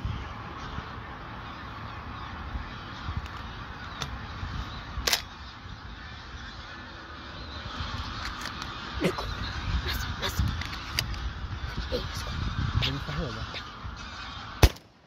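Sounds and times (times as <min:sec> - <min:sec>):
geese honking in flight: 0:00.0 - 0:14.8
sharp crack: 0:14.6 - 0:15.0.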